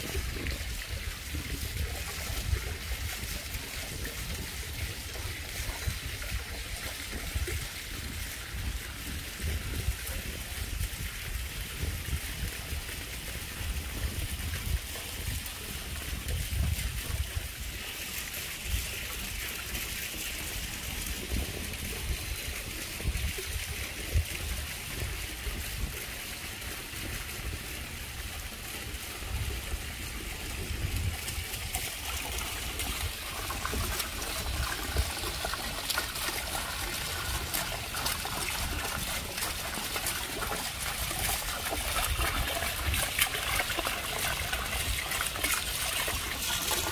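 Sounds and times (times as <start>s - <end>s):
water trickling and splashing: 0.0s - 46.9s.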